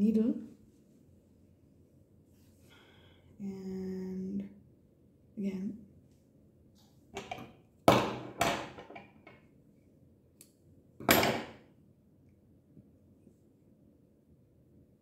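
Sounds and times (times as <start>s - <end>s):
knocks on wooden table: 7.2s - 9.0s.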